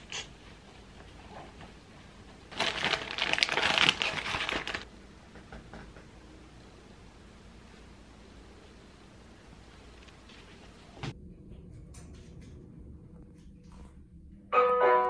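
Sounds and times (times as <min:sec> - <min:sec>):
pouch crinkling and rustling: 0:02.5 - 0:04.9.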